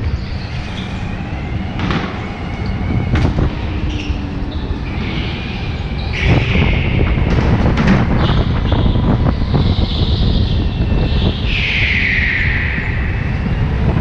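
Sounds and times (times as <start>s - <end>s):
tyre squeals: 0.0s - 13.8s
kart engine and road rumble: 0.0s - 14.0s.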